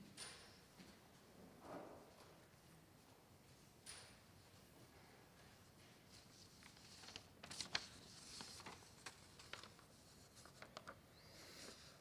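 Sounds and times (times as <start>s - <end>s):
paper rustling: 6.1s - 12.0s.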